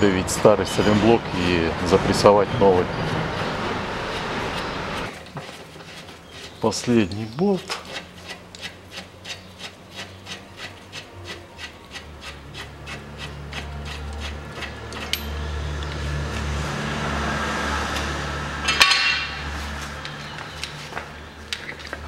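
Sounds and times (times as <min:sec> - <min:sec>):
metal brace clanking: 0:18.6 - 0:19.4.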